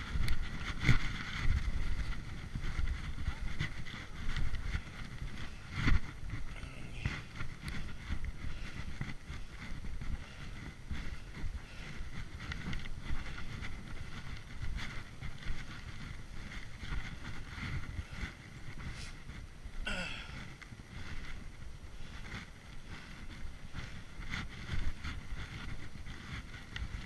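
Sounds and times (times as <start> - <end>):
wind buffeting microphone: 0.0 - 27.0
skis hissing over snow: 18.9 - 19.3.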